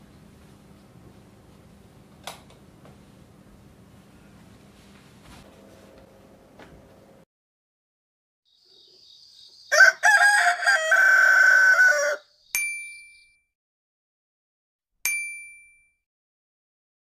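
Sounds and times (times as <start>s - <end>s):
rooster crowing: 9.7s - 12.3s
bright ding chimes: 12.6s - 13.4s, 15.1s - 16.0s.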